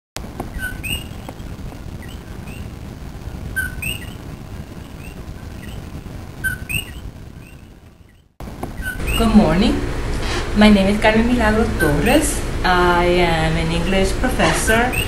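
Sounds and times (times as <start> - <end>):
steady low rumble: 0.2 - 15.0
frogs calling two-note calls: 3.6 - 4.2, 6.4 - 7.7.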